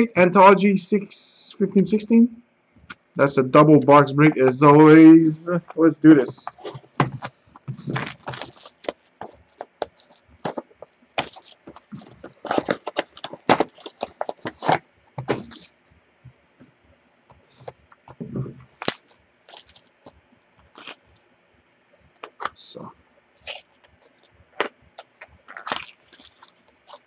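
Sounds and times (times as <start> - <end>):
box being handled: 6.3 - 15.7, 22.2 - 22.6, 23.4 - 27.0
cellophane crinkling: 6.4 - 15.7, 17.4 - 21.2, 23.3 - 27.0
shrink-wrap tearing: 6.6 - 15.7, 18.7 - 21.0, 23.4 - 27.0.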